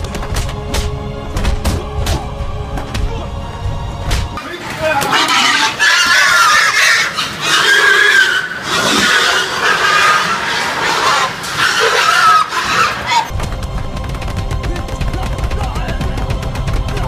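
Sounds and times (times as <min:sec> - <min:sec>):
pigs squealing: 0:04.4 - 0:13.3.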